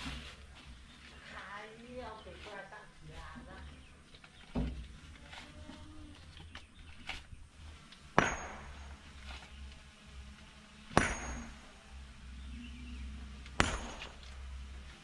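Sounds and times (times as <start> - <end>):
sharp metallic clangs: 8.2 - 9.1, 10.9 - 11.8, 13.6 - 14.4.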